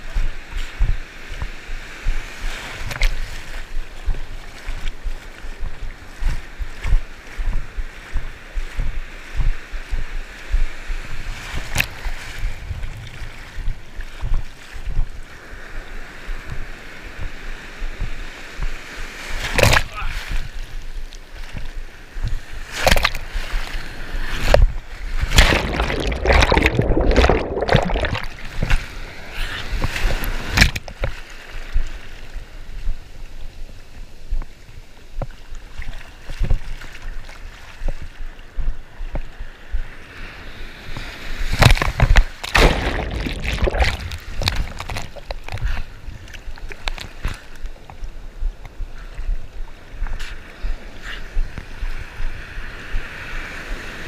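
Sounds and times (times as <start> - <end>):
water splashing against camera: 19.4 - 23.8, 24.4 - 31.9, 35.2 - 39.8, 40.9 - 49.4
ocean surf rushing: 22.0 - 30.7, 39.9 - 46.1.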